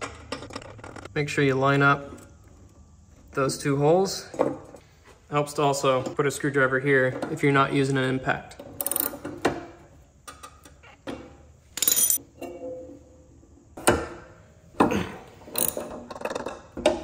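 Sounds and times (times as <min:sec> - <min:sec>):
ratchet wrench clicking: 0:15.6 - 0:15.8.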